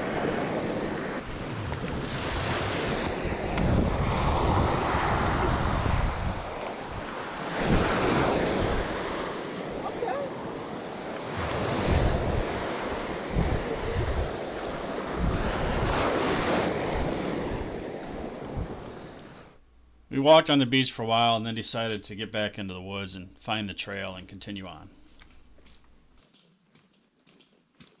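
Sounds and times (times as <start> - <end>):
wind buffeting microphone: 0.0 - 19.5
small waves washing onto sand: 0.0 - 19.6.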